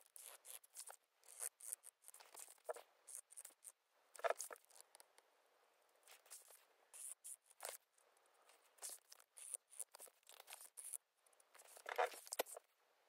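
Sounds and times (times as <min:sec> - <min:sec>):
pen scratching on paper: 0:00.0 - 0:04.8, 0:08.7 - 0:11.0.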